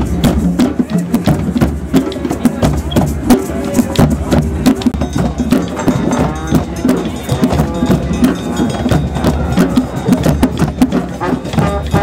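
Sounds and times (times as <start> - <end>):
hand drums and percussion: 0.0 - 12.0
trombone playing: 11.1 - 12.0.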